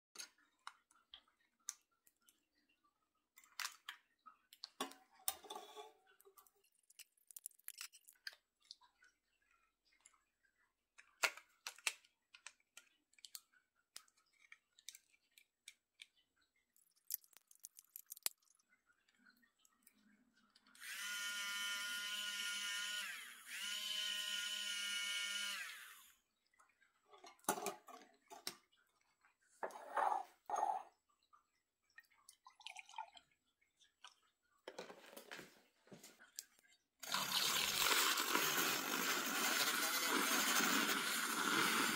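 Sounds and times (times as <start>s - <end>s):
milk frother motor whirring: 20.8s - 26.2s, 37.0s - 41.9s.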